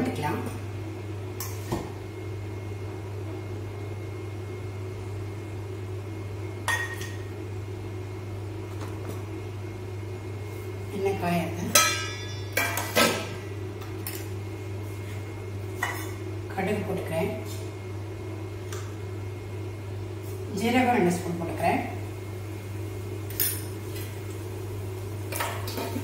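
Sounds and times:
steady low hum: 0:00.0 - 0:26.0
metal pots clinking: 0:11.7 - 0:13.3.

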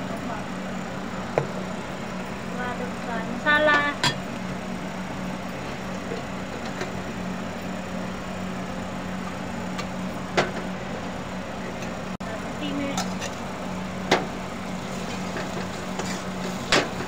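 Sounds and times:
onion sizzling in oil: 0:13.0 - 0:17.0.

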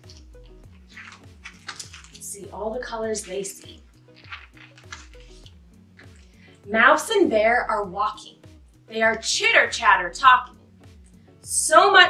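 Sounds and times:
book page turning: 0:00.0 - 0:02.3, 0:03.1 - 0:06.3
soft music with plucked bass: 0:00.0 - 0:12.0.

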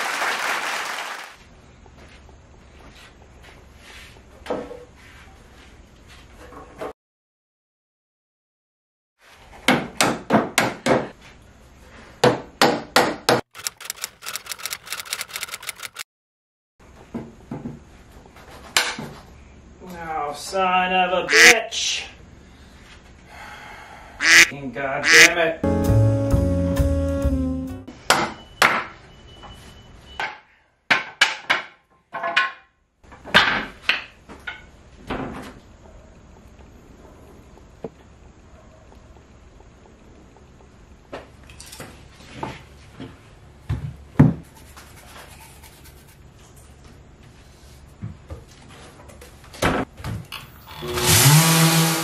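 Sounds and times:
hammer striking wood: 0:12.2 - 0:13.4.

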